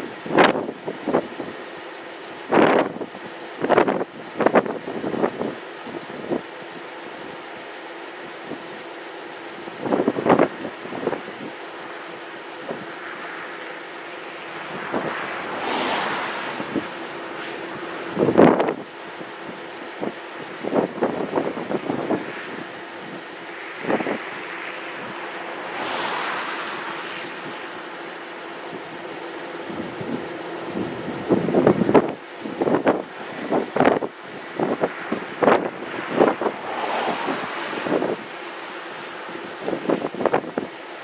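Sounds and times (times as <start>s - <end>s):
vehicle engine running: 0.0s - 41.0s
wind buffeting microphone: 9.8s - 27.9s, 29.7s - 40.8s.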